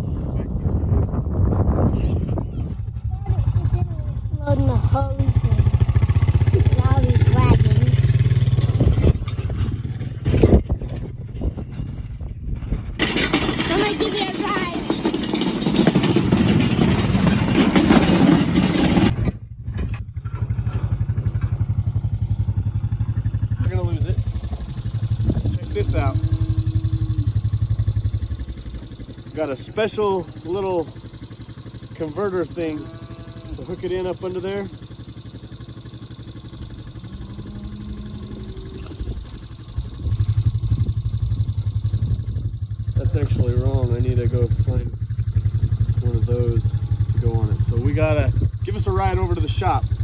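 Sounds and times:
atv engine running: 0.0s - 50.0s
metal cart rattling on gravel: 6.4s - 21.9s.

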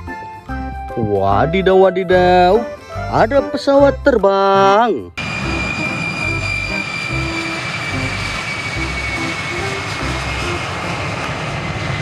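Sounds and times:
jet engines rushing and whining: 5.2s - 12.0s.

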